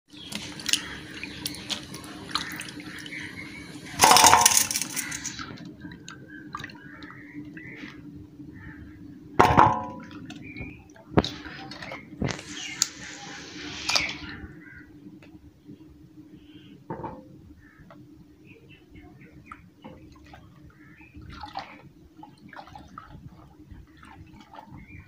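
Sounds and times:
vegetables washed in water: 0.1 - 5.4.

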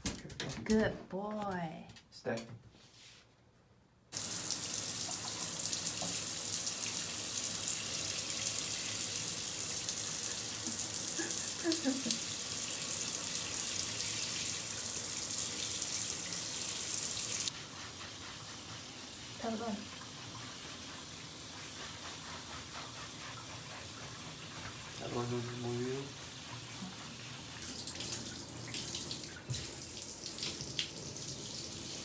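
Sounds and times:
shower water running into bathtub: 4.1 - 32.0.

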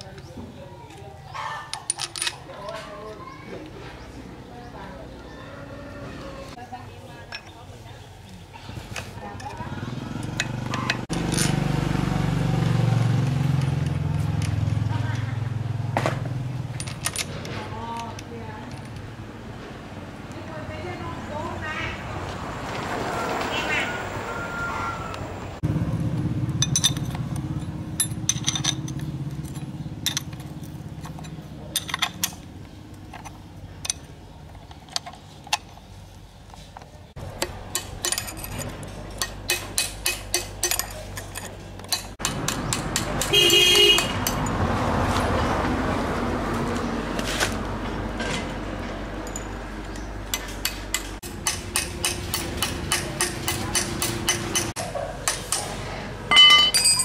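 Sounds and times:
metal tool clicking on steel ring: 37.4 - 43.3, 49.3 - 55.7.

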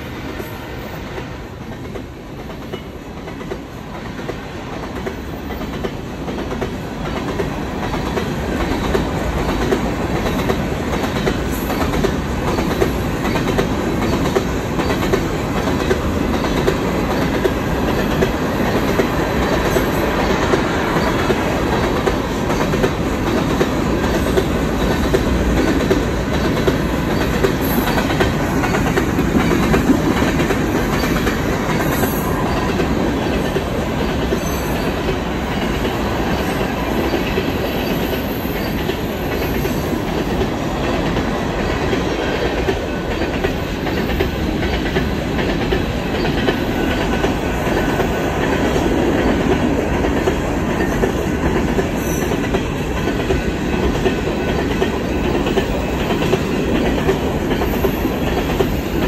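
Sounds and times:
train wheels clacking over rail joints: 1.1 - 59.0.

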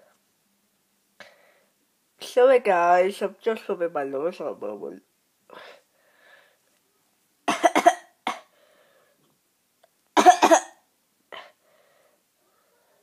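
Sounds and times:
boy coughing: 7.5 - 8.5, 10.2 - 10.8.

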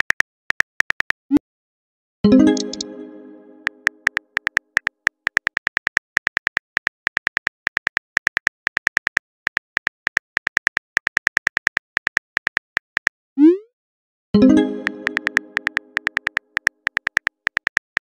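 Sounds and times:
message notification tone: 2.3 - 4.2, 14.4 - 16.3
phone keyboard key clicks: 3.9 - 13.2, 15.0 - 18.0.

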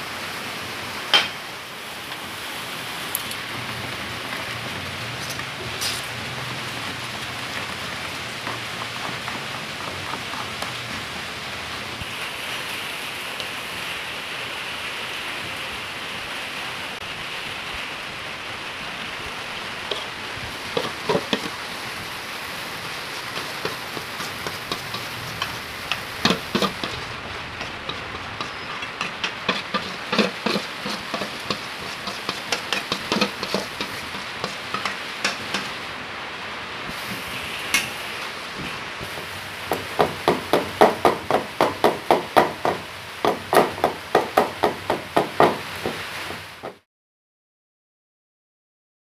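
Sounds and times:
steady hiss: 0.0 - 46.8
metal spoon scraping metal bowl: 23.3 - 35.7.

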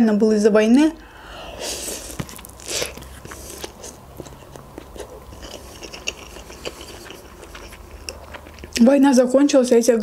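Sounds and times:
chewing with wet mouth clicks: 2.1 - 8.9.

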